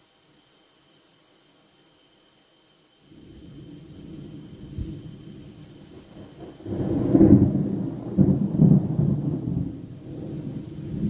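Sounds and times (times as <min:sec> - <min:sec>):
thunder rumble: 0:03.2 - 0:11.0.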